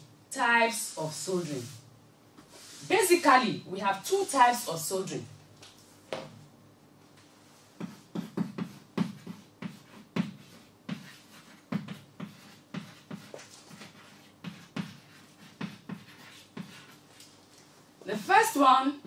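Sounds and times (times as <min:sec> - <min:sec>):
chalk writing on chalkboard: 0:07.7 - 0:17.1.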